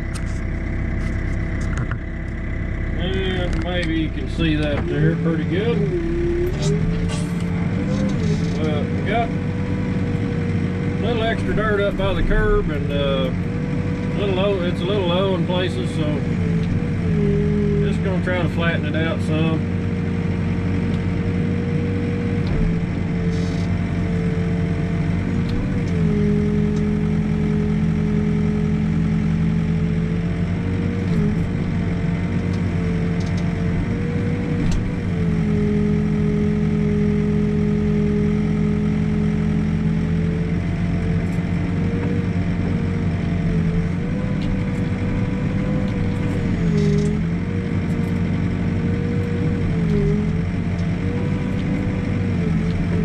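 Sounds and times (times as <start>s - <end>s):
steady whine: 0.0s - 27.0s
diesel engine running: 0.0s - 53.0s
low hum: 0.0s - 53.0s.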